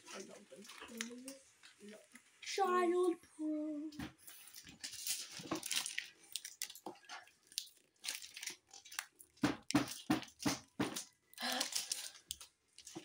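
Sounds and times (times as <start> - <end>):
plastic wrapper tearing: 4.4 - 13.0.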